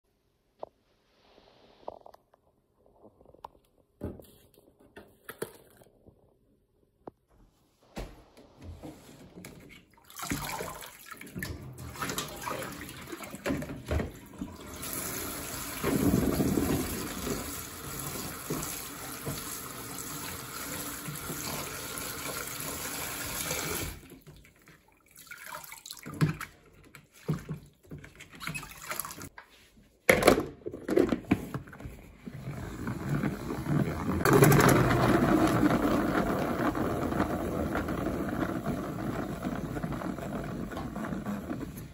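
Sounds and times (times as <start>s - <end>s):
tap water running: 9.4s - 29.3s.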